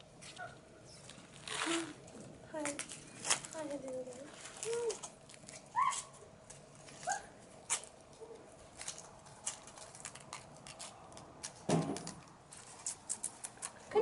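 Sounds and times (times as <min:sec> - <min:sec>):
light clicks and rustles: 0:00.2 - 0:14.0
puppy whimpering squeaks: 0:05.8 - 0:06.1.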